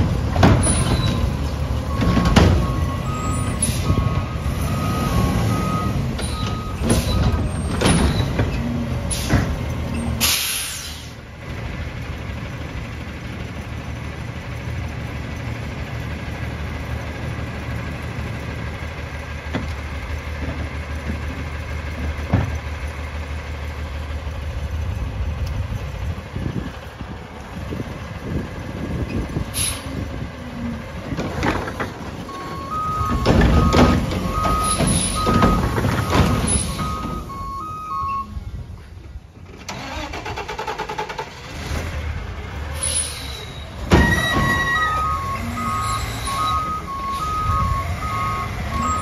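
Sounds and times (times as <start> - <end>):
truck diesel engine running: 0.0 - 49.0
clanks from cart arm: 0.3 - 4.0, 6.2 - 10.7, 31.1 - 37.2, 42.8 - 47.3
hiss of released air: 10.2 - 11.2
warning beeps: 32.3 - 38.3, 44.2 - 49.0.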